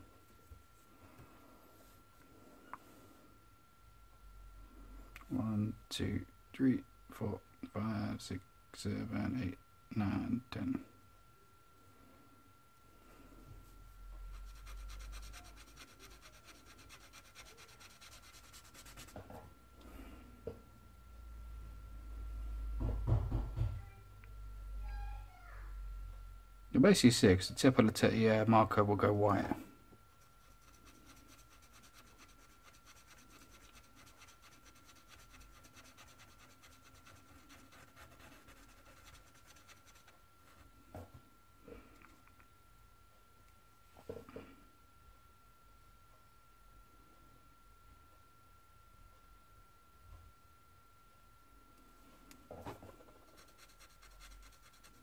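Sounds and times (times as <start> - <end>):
marker scratching on paper: 14.4 - 19.2, 30.3 - 40.1, 53.2 - 55.0
soft knock: 22.8 - 23.8.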